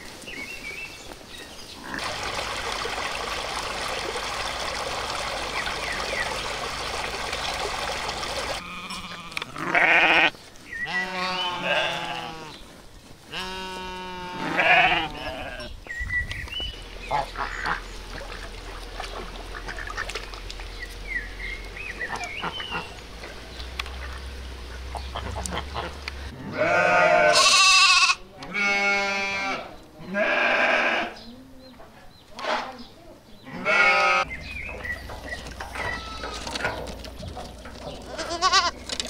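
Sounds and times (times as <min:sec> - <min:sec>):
ducks calling: 0:01.8 - 0:12.6, 0:16.5 - 0:28.2, 0:33.5 - 0:38.9
lambs bleating: 0:08.6 - 0:12.6, 0:13.3 - 0:15.7, 0:25.2 - 0:31.2, 0:33.5 - 0:34.3, 0:35.7 - 0:36.6, 0:38.0 - 0:38.8
sheep bleating: 0:08.6 - 0:12.6, 0:13.3 - 0:15.7, 0:25.2 - 0:31.2, 0:33.4 - 0:34.3, 0:35.8 - 0:36.6, 0:38.0 - 0:38.8
low steady rumble: 0:15.4 - 0:26.4.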